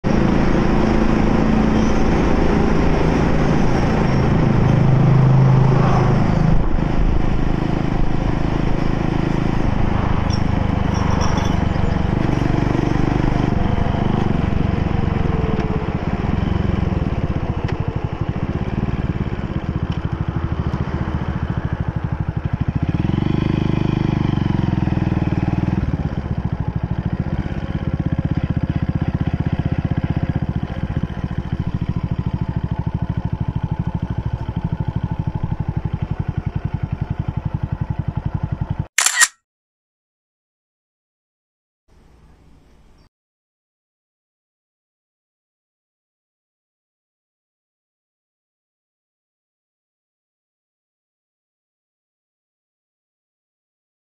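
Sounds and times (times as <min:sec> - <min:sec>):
motorcycle engine running: 0:00.0 - 0:39.2.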